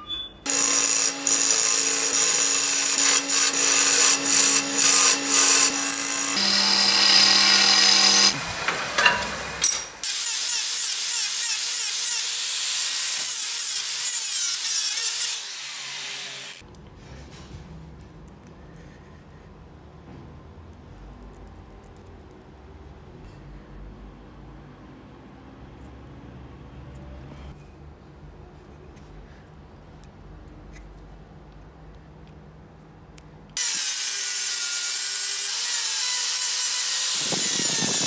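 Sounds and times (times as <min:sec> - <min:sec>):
turning tool scraping wood: 0:00.5 - 0:09.1
wood lathe motor hum: 0:00.5 - 0:09.7.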